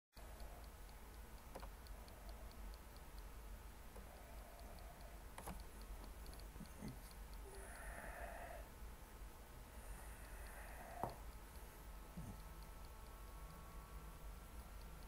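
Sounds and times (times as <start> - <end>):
light clicks: 0.2 - 8.2
faint steady ticking: 0.2 - 15.0
low hum: 0.2 - 15.0.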